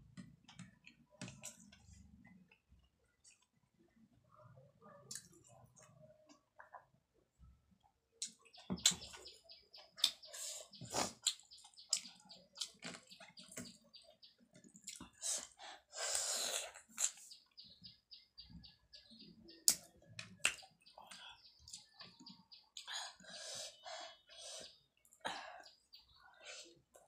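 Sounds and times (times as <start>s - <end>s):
bird chirping: 8.2s - 15.4s, 17.0s - 26.7s.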